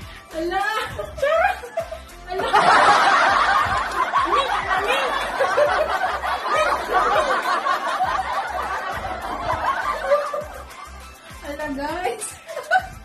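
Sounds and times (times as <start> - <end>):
women laughing: 0.8 - 11.0, 12.4 - 13.0.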